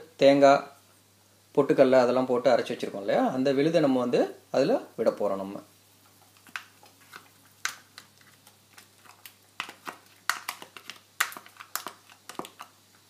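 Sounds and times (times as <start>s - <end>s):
spoon scraping and tapping plastic tub: 6.2s - 12.8s.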